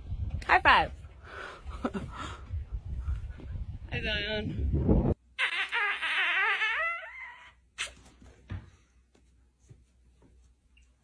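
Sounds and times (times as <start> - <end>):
dog whining: 5.4 - 7.6.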